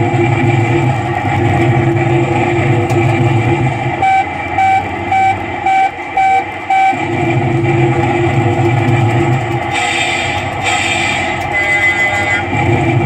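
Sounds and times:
truck engine sound effect: 0.0s - 13.0s
short electronic beeps: 4.0s - 7.0s.

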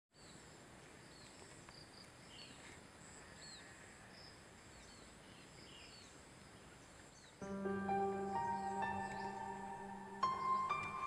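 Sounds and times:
insects droning: 0.4s - 11.0s
bird chirps: 7.1s - 11.0s.

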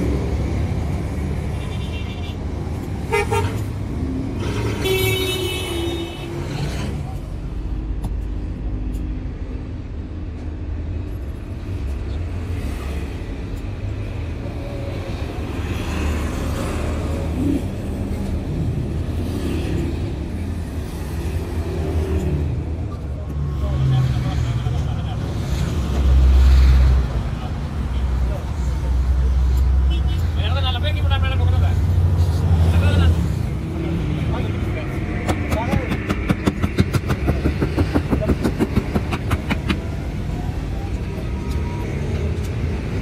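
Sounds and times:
road traffic with engines running: 0.0s - 43.0s
vehicle horns tooting: 3.0s - 3.6s, 4.4s - 6.5s.

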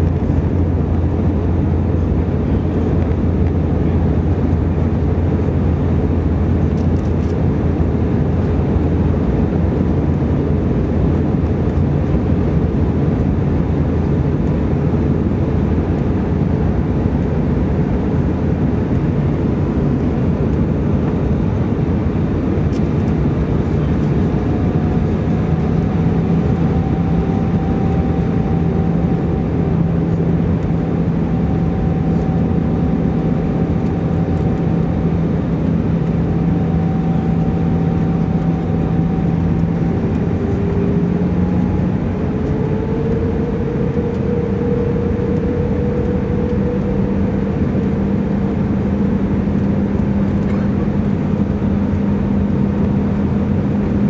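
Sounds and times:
jet cabin engine and airflow rush: 0.0s - 54.0s
steady low hum: 0.0s - 54.0s
faint high whine: 13.0s - 54.0s.

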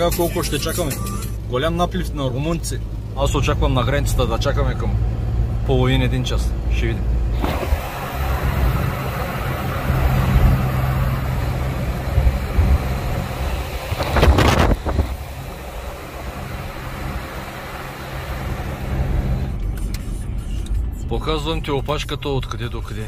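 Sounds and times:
low engine rumble: 0.0s - 23.0s
tyre and wind noise: 12.0s - 15.4s.

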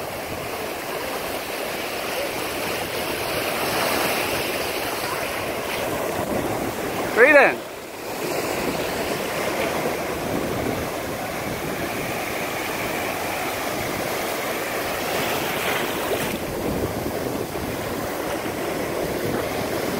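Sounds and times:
ocean surf breaking: 0.0s - 19.9s.

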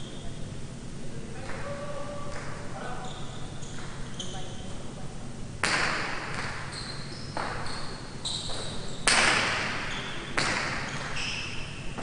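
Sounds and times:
shoes squeaking on court floor: 2.8s - 4.8s, 6.4s - 9.1s, 9.8s - 12.0s
ball hits echoing in court: 5.6s - 6.7s, 7.4s - 7.7s, 8.5s - 11.2s.

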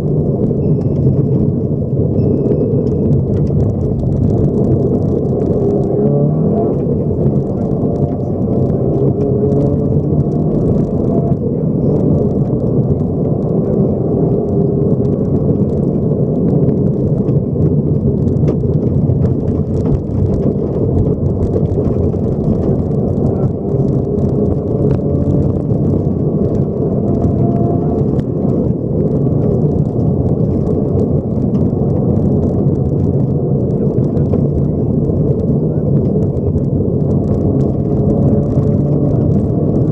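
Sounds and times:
car engine accelerating: 0.0s - 39.9s
stones ticking against underbody: 0.0s - 39.9s
tyres roaring on gravel: 0.0s - 39.9s.

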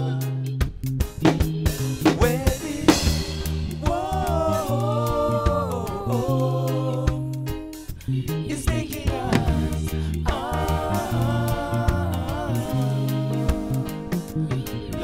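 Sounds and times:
bass: 0.0s - 15.0s
keyboard: 0.0s - 15.0s
percussion hits: 9.3s - 9.8s.

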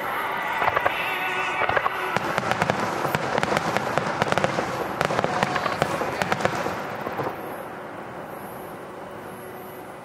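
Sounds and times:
fireworks bangs and crackling: 0.6s - 7.8s.

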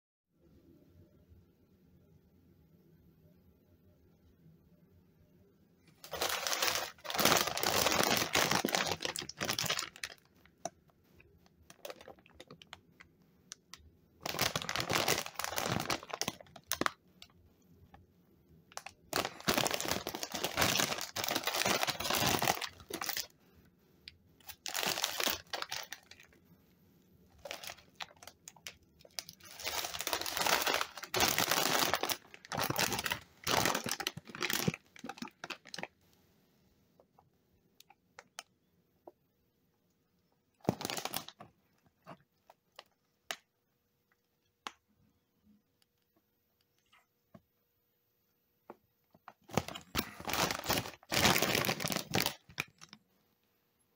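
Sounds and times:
chip bag crinkling: 6.0s - 10.7s, 11.7s - 12.8s, 13.6s - 17.3s, 18.7s - 23.3s, 24.4s - 26.4s, 27.4s - 35.9s, 40.6s - 41.5s, 49.4s - 53.0s.

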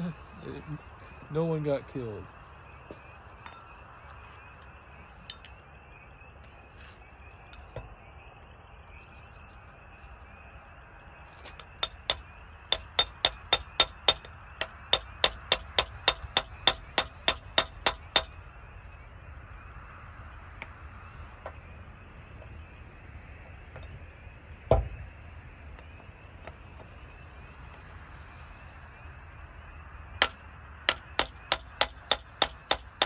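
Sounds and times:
hammer striking steel: 11.6s - 18.4s, 30.2s - 33.0s.

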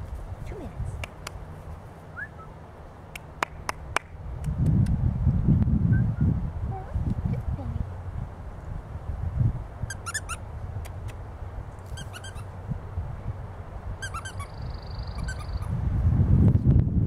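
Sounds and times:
wind rumble on microphone: 0.0s - 2.5s, 3.3s - 17.0s
squeaky dog toy squeaking: 9.9s - 10.4s, 11.9s - 12.5s, 14.0s - 15.7s.

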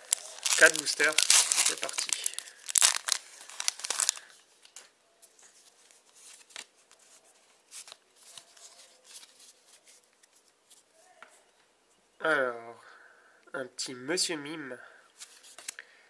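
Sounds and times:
foil wrapper crinkling: 0.0s - 4.3s
trading cards rustling: 0.0s - 4.3s.

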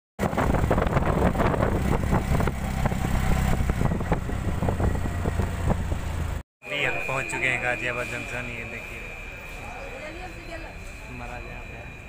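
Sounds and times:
wind buffeting microphone: 0.2s - 6.4s
rickshaw engine and road rumble: 0.2s - 12.0s.

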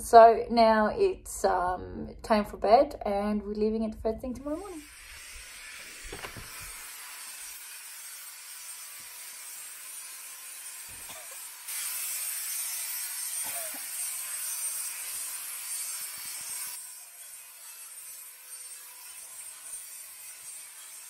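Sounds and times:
workshop background hiss: 4.7s - 21.0s.

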